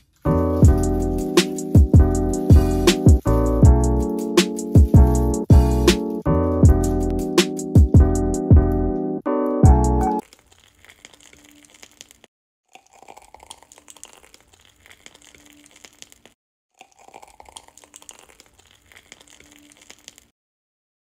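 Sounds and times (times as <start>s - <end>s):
piping bag crinkling: 0.0s - 6.1s, 10.2s - 20.3s
small squishy clicks: 10.2s - 12.3s, 13.7s - 16.4s.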